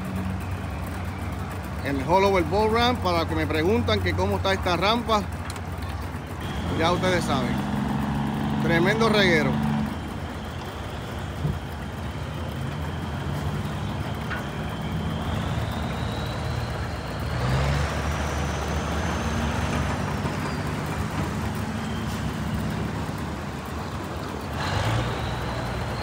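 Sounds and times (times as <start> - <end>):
engines running: 0.0 - 26.0.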